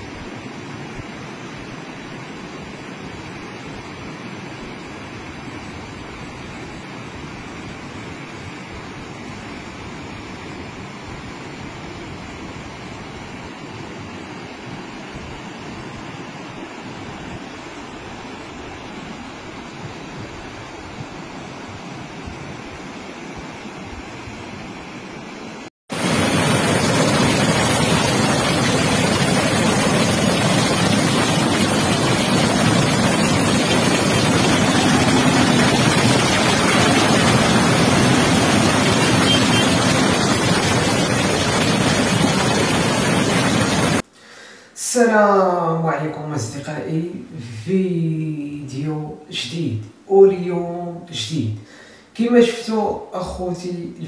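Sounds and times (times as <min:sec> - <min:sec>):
floodwater rushing: 0:25.9 - 0:44.0
swollen river rushing: 0:25.9 - 0:44.0.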